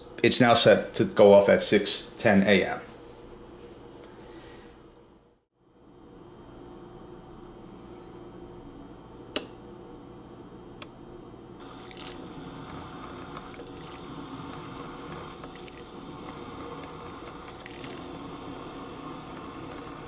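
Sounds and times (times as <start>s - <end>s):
coffee maker hissing and crackling: 11.6s - 20.0s.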